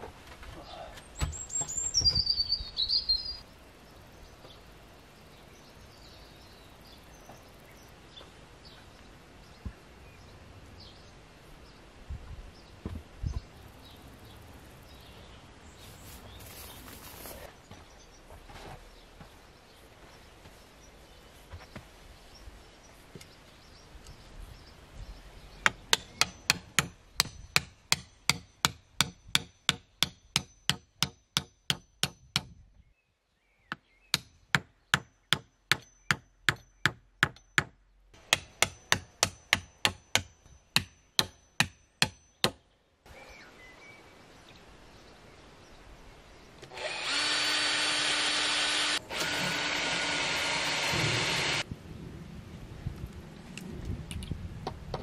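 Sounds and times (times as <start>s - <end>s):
hammer driving stakes into soil: 25.7s - 32.6s, 34.2s - 42.6s
cordless drill whining: 46.6s - 51.6s.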